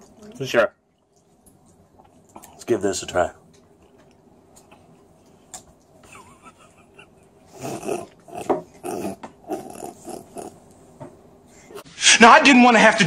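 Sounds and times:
man grunting while chewing: 7.5 - 10.6.

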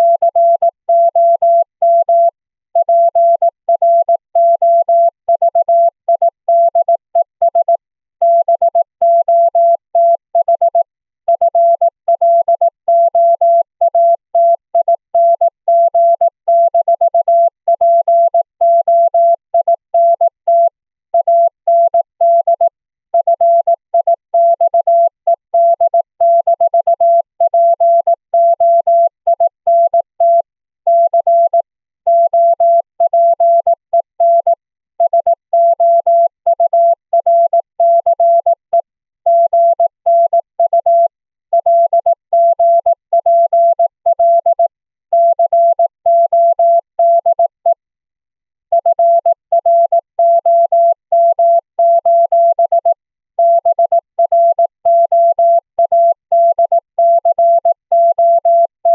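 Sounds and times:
morse code tone: 16.0 - 47.8, 48.7 - 58.9.

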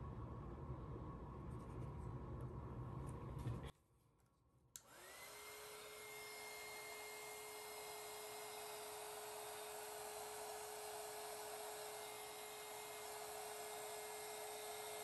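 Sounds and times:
heat gun motor whine: 4.8 - 15.0.

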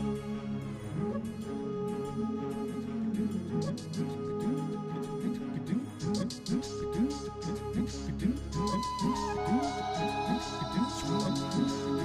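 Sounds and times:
instrumental background music: 0.0 - 12.0.

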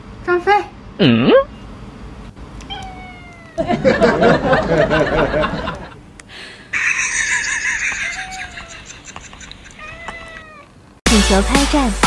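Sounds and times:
cat meowing: 2.6 - 3.6, 9.8 - 10.7.

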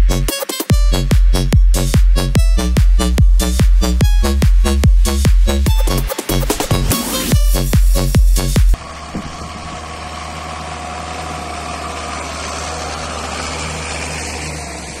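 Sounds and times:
loud electronic dance music: 0.0 - 8.8
tractor diesel engine under load: 0.0 - 15.0.

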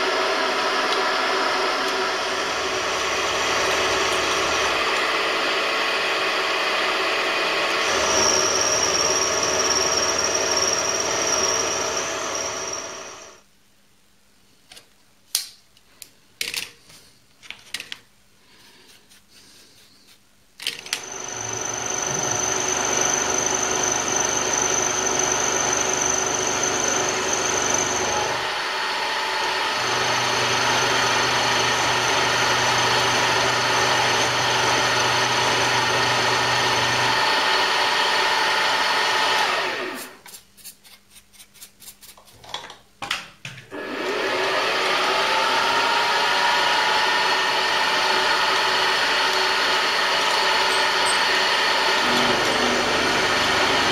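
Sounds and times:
milling machine cutting metal: 0.0 - 13.4, 20.8 - 40.0, 43.8 - 53.9
motor whine: 0.0 - 13.4, 20.8 - 40.0, 43.8 - 53.9.

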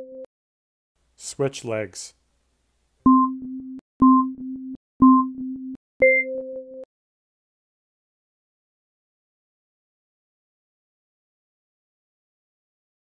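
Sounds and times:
electronic countdown beeps: 3.0 - 6.9.

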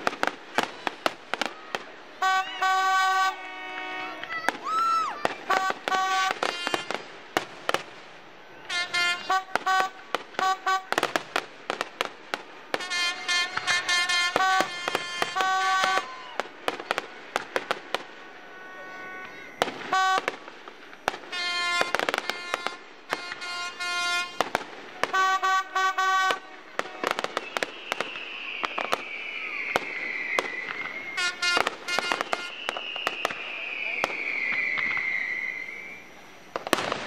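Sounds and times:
fireworks bangs and crackles: 0.0 - 37.0
long falling whistle: 1.4 - 6.9, 12.8 - 17.0, 25.1 - 36.3
short horn blasts: 2.2 - 4.3, 5.5 - 7.0, 8.7 - 11.0, 12.8 - 16.1, 21.3 - 24.5, 25.1 - 27.3, 31.2 - 32.6.

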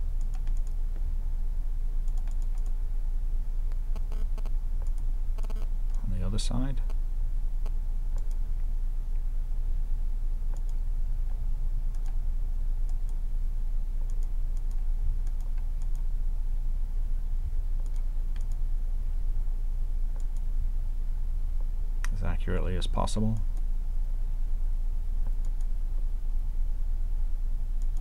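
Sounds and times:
low hum: 0.0 - 28.0
computer mouse clicking: 0.2 - 0.8, 2.0 - 2.8, 3.7 - 6.0, 7.6 - 8.4, 10.5 - 10.8, 11.9 - 12.2, 12.9 - 13.2, 14.1 - 16.1, 17.8 - 18.6, 20.1 - 20.5, 25.2 - 25.7, 27.8 - 28.0.

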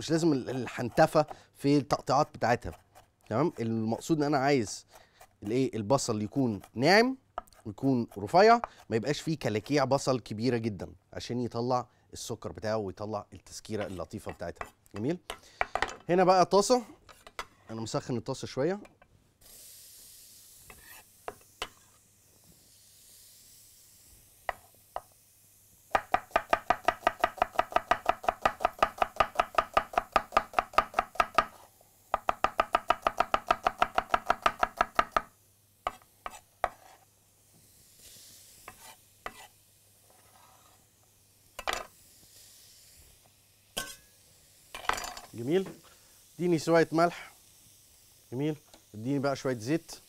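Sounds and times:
knife slicing onion on wooden board: 0.2 - 1.4, 2.5 - 9.1, 20.7 - 21.9, 25.9 - 37.1, 38.6 - 39.6.

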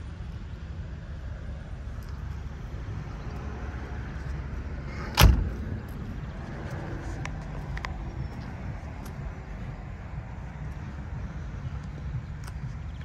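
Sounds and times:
car door shutting: 4.9 - 5.8.

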